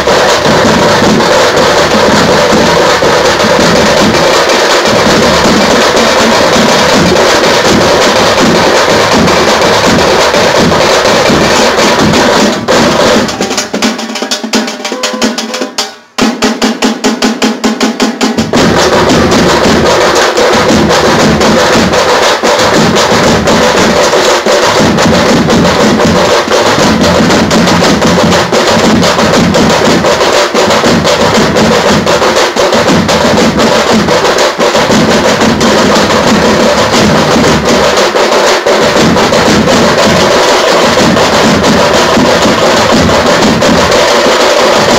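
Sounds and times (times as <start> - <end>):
bass drums: 0.0 - 13.8, 18.2 - 44.9
frame drums beaten with sticks: 0.0 - 44.9.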